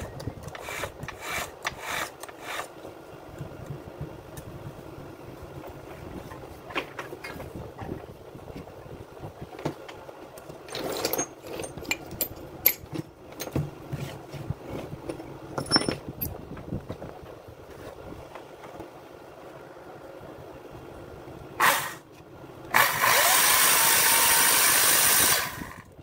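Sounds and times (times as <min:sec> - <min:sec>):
handling clicks and knocks: 0:09.6 - 0:17.1.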